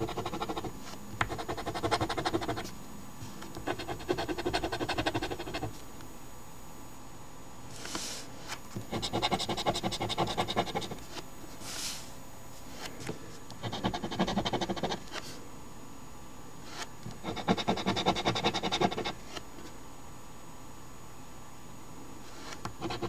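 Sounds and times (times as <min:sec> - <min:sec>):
scratching lottery ticket: 0:00.0 - 0:02.7, 0:08.9 - 0:11.1, 0:17.2 - 0:19.2.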